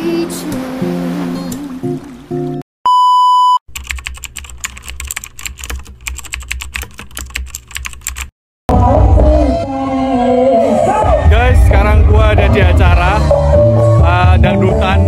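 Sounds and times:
loud steady beep: 0:02.9 - 0:03.6
keyboard typing clicks: 0:03.7 - 0:08.3
music: 0:08.7 - 0:15.0.

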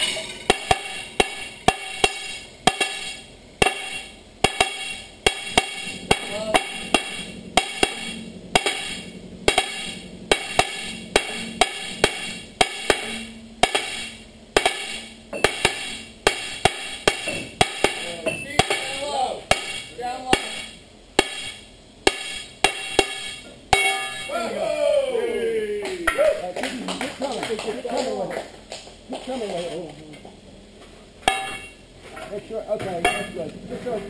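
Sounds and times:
sledgehammer clanging on steel: 0:00.0 - 0:24.4, 0:31.2 - 0:34.0.

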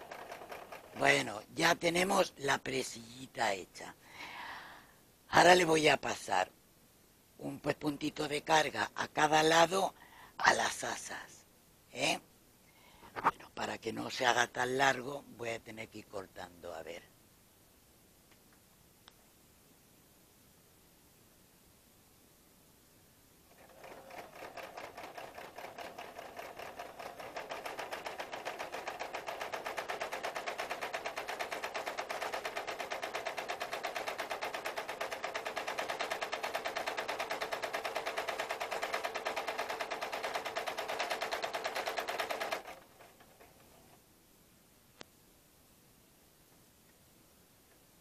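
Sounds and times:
sewing machine stitching: 0:00.0 - 0:01.4, 0:23.5 - 0:44.0.

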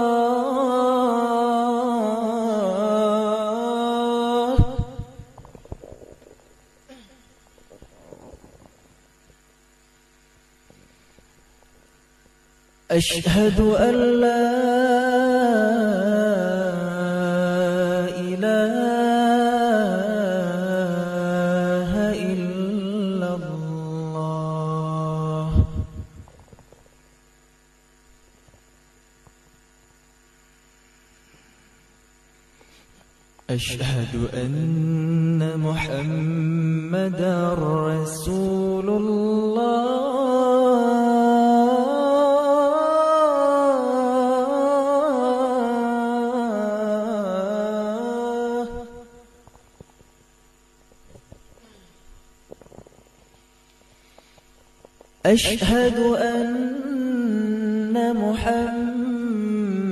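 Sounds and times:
faint electrical hum: 0:00.0 - 0:59.9
man chanting call to prayer: 0:12.9 - 0:26.0, 0:33.5 - 0:49.0, 0:55.2 - 0:59.9.

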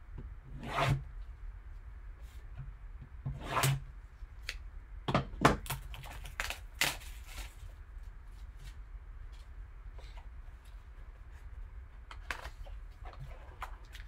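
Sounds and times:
scissors snipping plastic wrap: 0:05.6 - 0:07.4
plastic film crackling as torn: 0:05.6 - 0:07.6.

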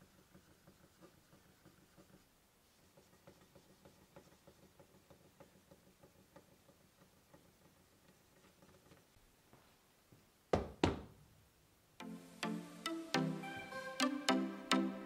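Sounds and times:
cloth wiping wooden chair: 0:00.0 - 0:09.1.

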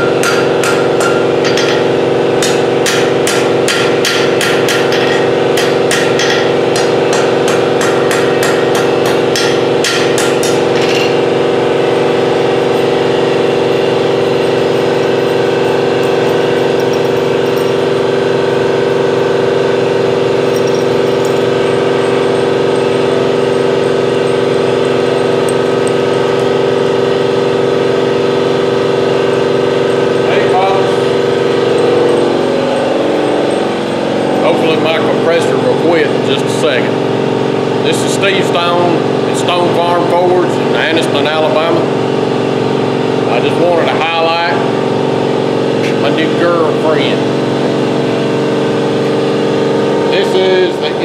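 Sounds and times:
hammer striking steel on anvil: 0:00.0 - 0:11.4, 0:12.0 - 0:27.2
air compressor drone: 0:00.0 - 0:51.0.

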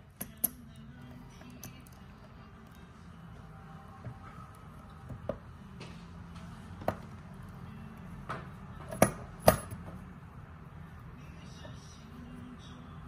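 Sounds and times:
metal clicks and clinks: 0:00.1 - 0:02.1.

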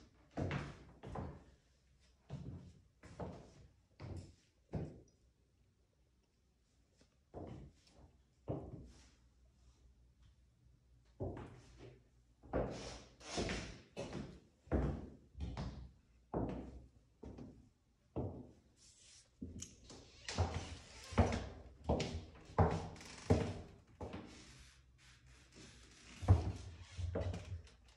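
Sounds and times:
footsteps on hardwood floor: 0:16.3 - 0:17.6, 0:20.3 - 0:24.4, 0:25.5 - 0:27.9.

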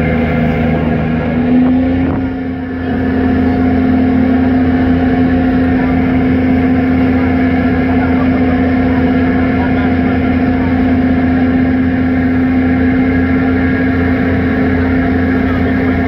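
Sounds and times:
ferry engines droning: 0:00.0 - 0:16.0.

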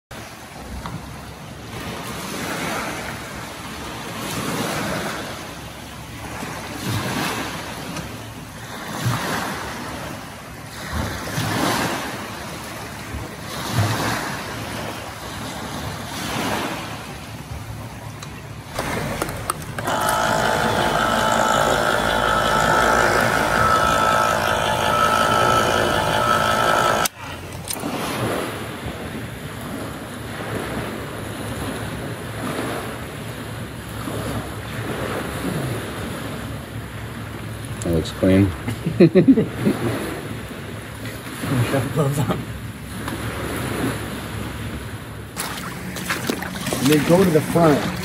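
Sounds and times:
electric can opener humming: 0:18.7 - 0:27.8, 0:45.4 - 0:48.0
waves washing onto shingle: 0:45.3 - 0:48.0.

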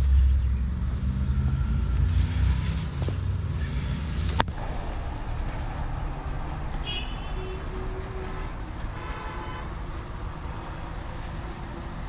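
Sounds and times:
grass and brush rustling: 0:00.0 - 0:04.6, 0:09.6 - 0:12.0
heavy engine rumbling: 0:00.0 - 0:12.0.

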